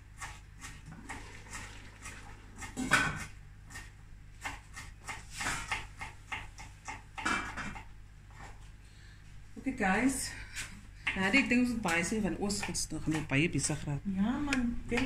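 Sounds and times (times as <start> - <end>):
knife chopping on wooden board: 2.0 - 7.9, 12.5 - 13.3.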